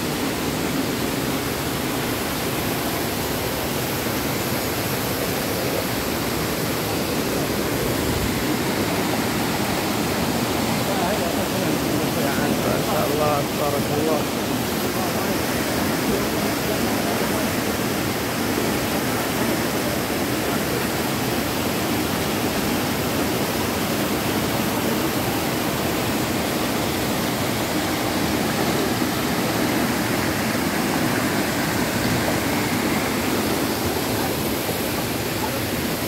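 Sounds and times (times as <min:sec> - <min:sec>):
water rushing over rocks: 0:00.0 - 0:36.0.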